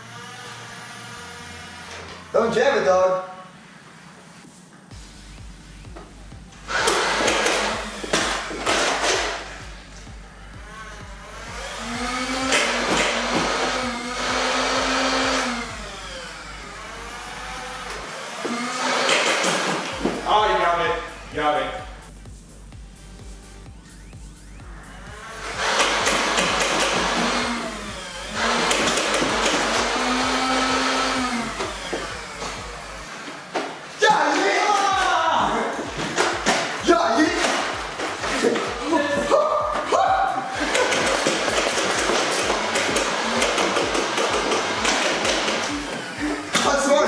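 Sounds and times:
toy blaster motor whir: 0.0s - 2.2s, 6.7s - 9.4s, 10.6s - 20.0s, 25.1s - 33.3s, 40.5s - 47.0s
toy blaster flywheels whining: 0.0s - 2.3s.

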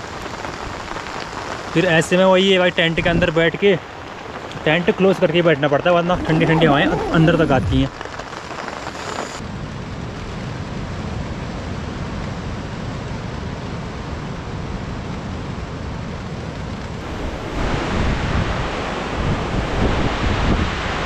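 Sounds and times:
heavy rain pouring: 0.0s - 21.0s
wind rumbling on microphone: 5.8s - 21.0s.

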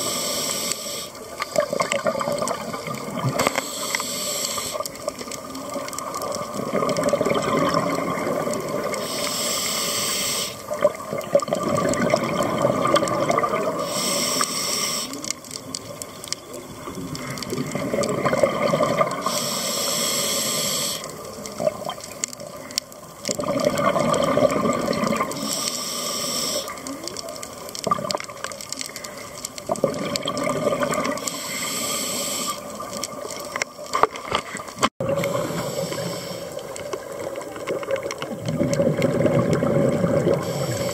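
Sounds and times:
regulator hissing inhale: 0.0s - 1.2s, 3.4s - 5.1s, 8.9s - 10.7s, 13.7s - 15.4s, 19.2s - 21.3s, 25.3s - 26.9s, 31.2s - 32.8s, 35.2s - 36.8s, 40.4s - 40.9s
exhaled bubbles burbling: 1.4s - 3.6s, 5.0s - 9.1s, 10.6s - 13.9s, 15.3s - 19.4s, 21.2s - 25.5s, 27.0s - 31.4s, 32.6s - 40.9s.

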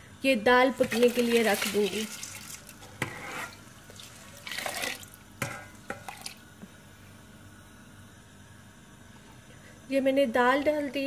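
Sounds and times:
lentils and water splashing into pan: 0.8s - 6.4s.

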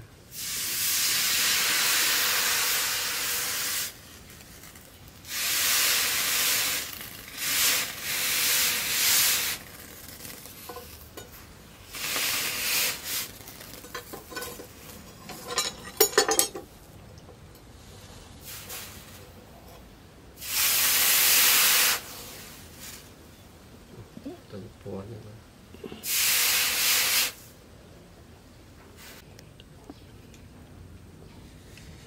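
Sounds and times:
hot blade hissing in water: 0.3s - 4.0s, 5.2s - 10.0s, 11.9s - 14.1s, 20.4s - 23.0s, 26.0s - 27.4s.

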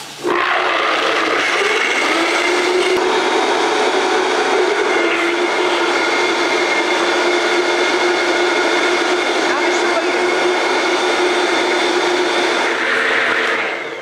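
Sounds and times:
blender whining at high speed: 0.0s - 14.0s.

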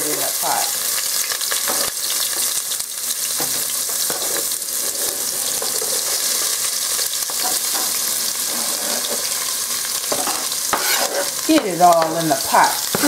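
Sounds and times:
onion sizzling in pot: 0.0s - 13.0s
scraping on cutting board: 4.1s - 6.5s, 7.4s - 9.4s, 10.1s - 11.4s.

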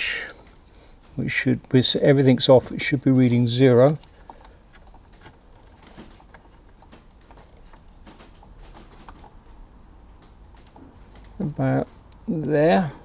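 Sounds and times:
small clicks and taps: 10.2s - 12.3s.

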